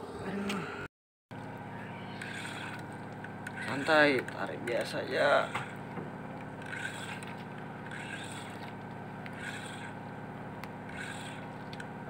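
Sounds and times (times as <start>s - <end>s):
boat engine hum: 0.0s - 12.0s
fishing reel swish: 2.1s - 2.8s, 6.6s - 7.3s, 7.9s - 8.6s, 9.4s - 10.0s, 10.9s - 11.4s.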